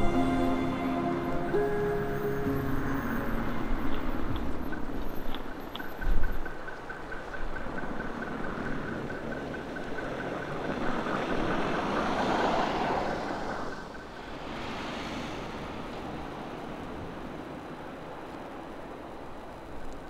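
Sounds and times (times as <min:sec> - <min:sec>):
crossing signal ticking rapidly: 0:01.6 - 0:14.4
car tyres hissing on snow: 0:11.6 - 0:20.0.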